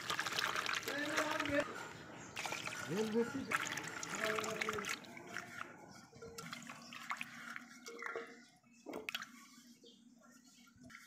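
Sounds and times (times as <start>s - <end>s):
potatoes splashing in water bowl: 0.0s - 1.7s, 2.4s - 5.6s.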